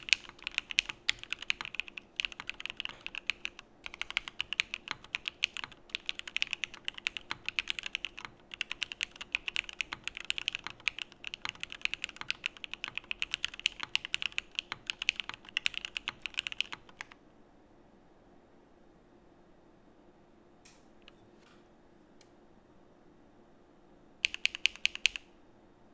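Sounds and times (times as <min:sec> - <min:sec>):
mechanical keyboard typing: 0:00.0 - 0:17.2, 0:24.2 - 0:25.3.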